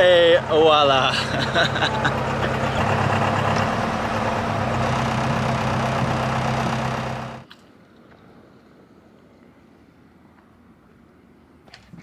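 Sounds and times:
diesel engine idling: 0.0 - 7.4.

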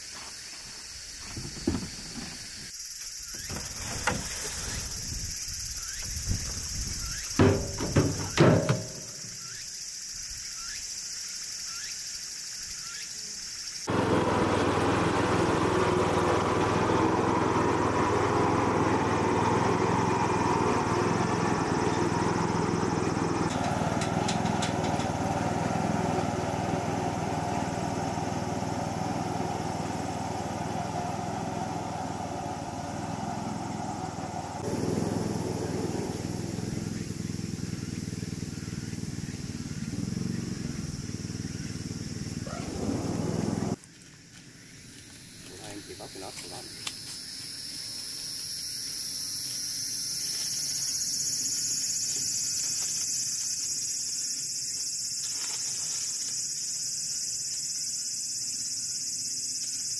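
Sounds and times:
high insect-like hiss: 0.0 - 13.9, 20.0 - 59.9
small engine running: 1.4 - 9.5, 13.8 - 43.9.

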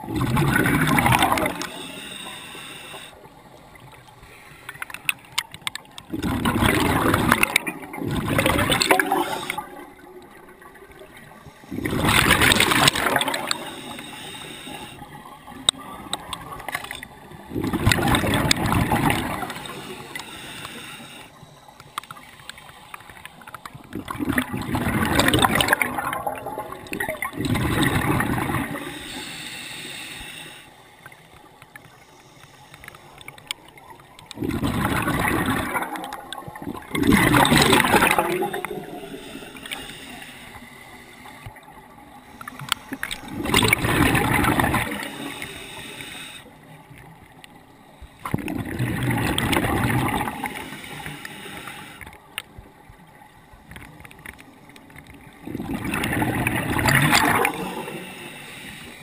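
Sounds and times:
bubbles gurgling: 0.0 - 2.0, 5.7 - 20.2, 23.8 - 29.1, 33.8 - 39.8, 41.6 - 45.7, 48.2 - 50.7, 55.1 - 58.2
diver breathing: 0.9 - 3.2, 11.4 - 15.2, 18.2 - 21.8, 28.6 - 31.0, 37.3 - 46.7, 50.2 - 52.2, 57.0 - 59.0.

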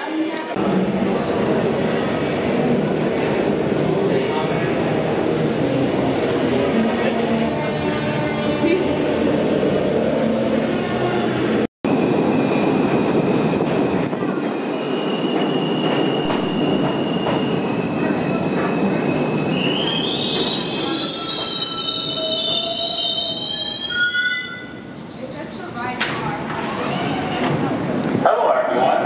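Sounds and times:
subway train rumbling: 0.0 - 29.0
train brakes squealing: 14.7 - 25.0.

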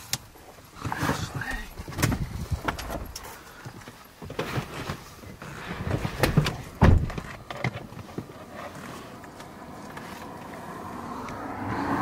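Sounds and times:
knocks and clicks inside a car: 6.1 - 8.2
heavy thump: 6.2 - 7.3.

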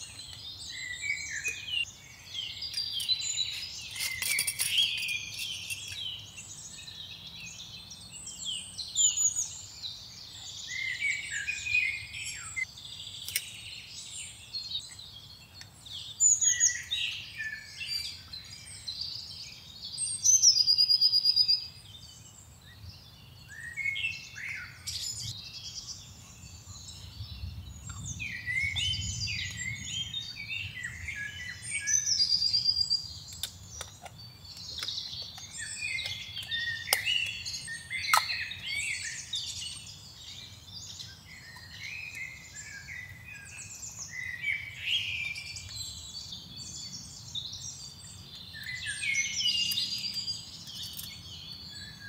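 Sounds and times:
songbirds chirping and singing: 0.0 - 52.0.

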